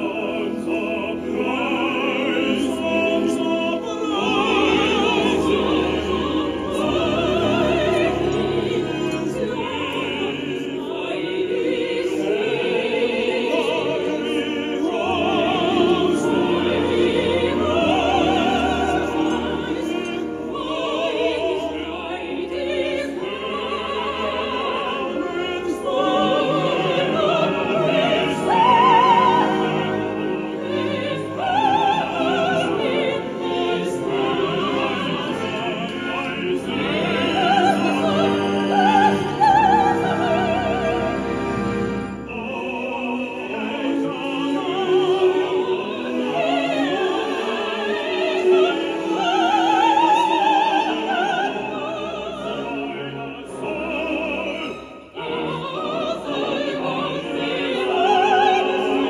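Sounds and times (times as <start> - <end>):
operatic trio singing: 0.0 - 59.0
orchestra playing: 0.0 - 59.0.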